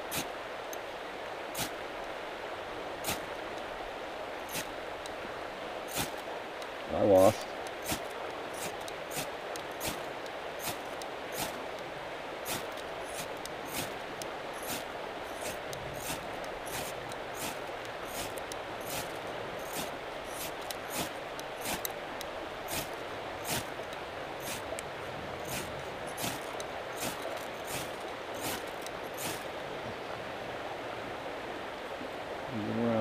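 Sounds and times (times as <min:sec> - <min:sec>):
fast-flowing creek rushing: 0:00.0 - 0:33.0
ferro rod striker scraping: 0:05.9 - 0:06.7, 0:07.6 - 0:11.8, 0:12.5 - 0:22.0, 0:25.4 - 0:29.5.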